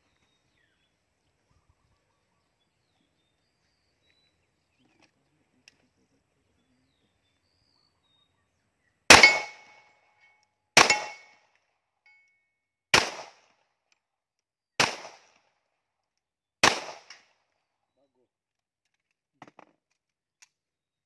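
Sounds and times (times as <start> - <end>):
pistol shots: 9.1 - 9.8, 10.8 - 11.4, 12.9 - 13.5, 14.8 - 15.4, 16.6 - 17.3
steel target plate ringing: 9.1 - 11.4.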